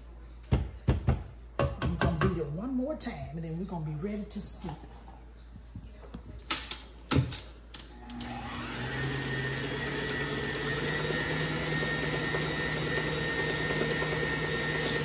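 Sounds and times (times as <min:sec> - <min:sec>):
electric mixer running: 0:08.0 - 0:15.0.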